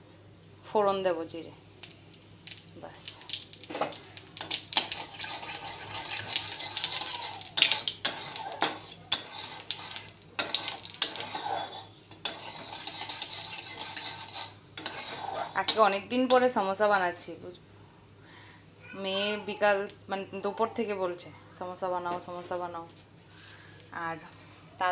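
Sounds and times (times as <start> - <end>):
seeds sizzling in hot oil: 1.3 - 16.5
metal spoon scraping pan: 4.4 - 16.4.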